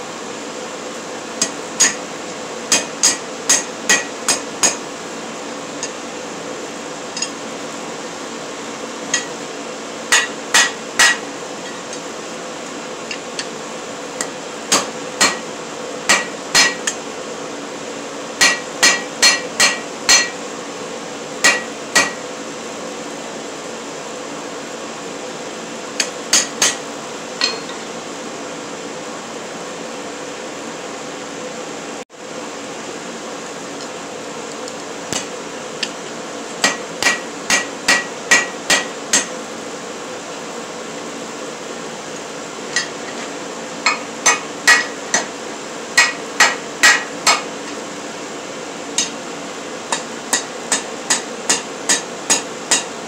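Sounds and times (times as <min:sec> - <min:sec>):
hammer striking metal on anvil: 0:01.4 - 0:02.0, 0:02.7 - 0:04.8, 0:07.2 - 0:07.4, 0:09.1 - 0:09.3, 0:10.1 - 0:11.8, 0:14.2 - 0:15.5, 0:16.1 - 0:17.0, 0:18.4 - 0:20.4, 0:21.4 - 0:22.2, 0:26.0 - 0:26.8, 0:27.4 - 0:27.9, 0:36.6 - 0:39.4, 0:43.9 - 0:45.3, 0:46.0 - 0:47.5, 0:49.0 - 0:49.2, 0:49.9 - 0:52.9.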